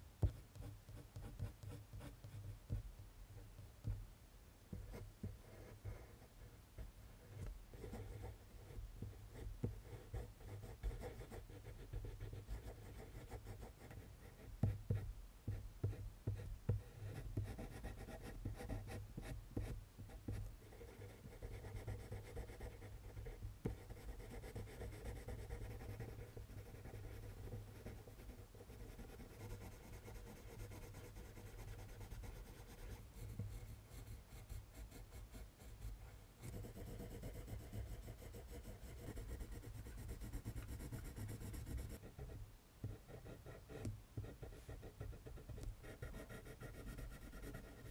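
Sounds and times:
pencil scratching on paper: 20.3s - 42.3s, 42.9s - 47.9s.

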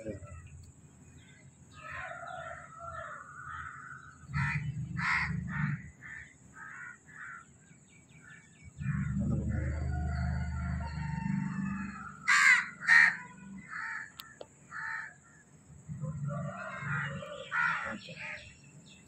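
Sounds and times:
crows cawing: 1.7s - 7.5s, 8.2s - 15.4s, 16.3s - 18.5s
steady low sound: 8.8s - 12.2s.

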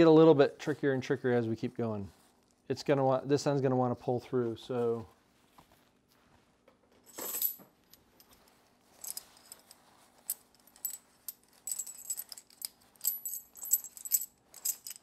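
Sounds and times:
metal rings jingling: 8.2s - 15.0s.

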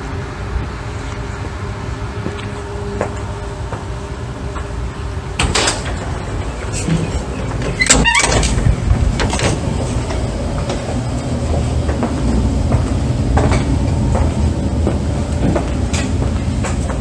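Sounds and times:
steady low rumble: 0.0s - 17.0s
door thudding shut: 5.4s - 9.7s
footstep knocks: 5.4s - 17.0s.

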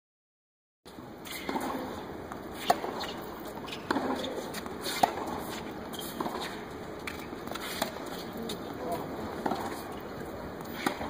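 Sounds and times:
steady background noise: 0.9s - 11.0s
tennis ball struck by rackets: 1.3s - 8.0s, 9.4s - 9.9s, 10.6s - 11.0s.

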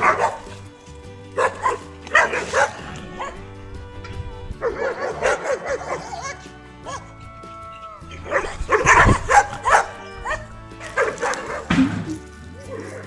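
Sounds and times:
dog barking: 0.0s - 0.6s, 1.4s - 3.4s, 4.6s - 7.1s, 8.2s - 11.8s
background music with held tones: 0.0s - 13.0s.

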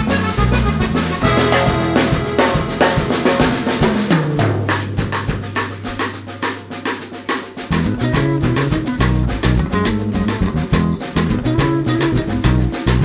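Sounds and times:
bass line: 0.0s - 5.8s, 7.7s - 13.0s
background music with drum beat: 0.0s - 13.0s.

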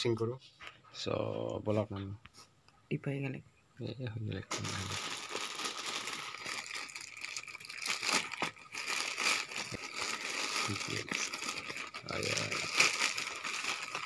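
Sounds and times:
plastic bag crinkling: 4.5s - 14.0s.

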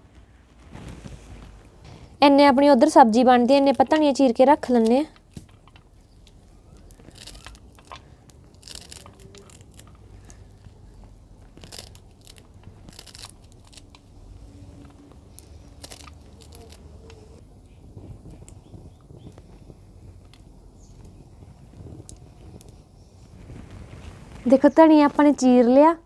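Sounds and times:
knife crunching through stems: 4.7s - 17.4s.

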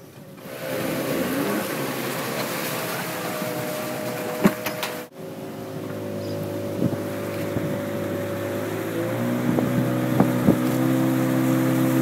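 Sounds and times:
water: 0.0s - 12.0s
boat engine running: 0.2s - 12.0s
wind noise: 6.4s - 12.0s.

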